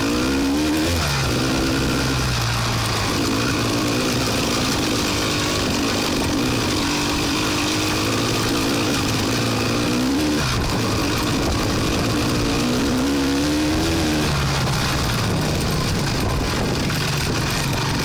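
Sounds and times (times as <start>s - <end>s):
off-road vehicle engine: 0.0s - 18.0s
steady rushing noise: 0.0s - 18.0s.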